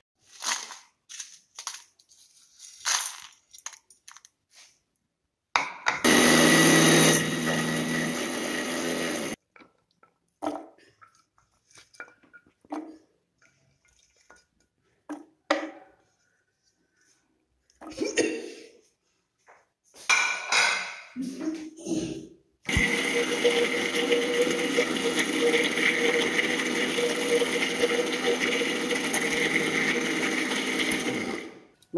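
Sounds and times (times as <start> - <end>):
mixer grinder running: 6.0 - 9.4, 22.7 - 31.7.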